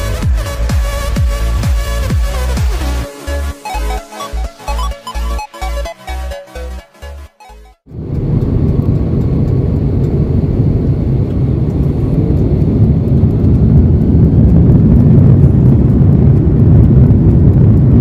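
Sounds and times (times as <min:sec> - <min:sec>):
jet engines rumbling in cabin: 0:07.9 - 0:18.0.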